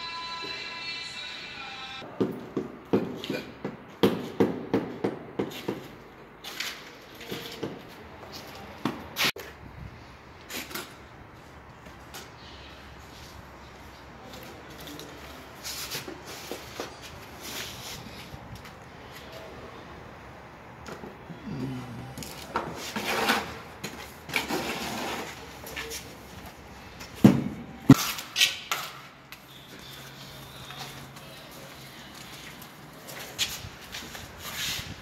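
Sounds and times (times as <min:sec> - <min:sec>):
low voice-like hum: 0:21.3 - 0:22.5
hand tools scraping mortar: 0:22.0 - 0:26.0.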